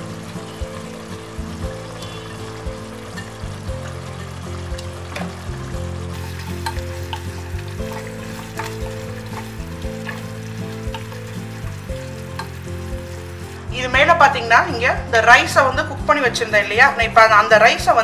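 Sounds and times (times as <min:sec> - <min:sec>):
gravy sizzling in a pan: 0:00.0 - 0:13.7
spatula tapping a pan: 0:06.5 - 0:12.6.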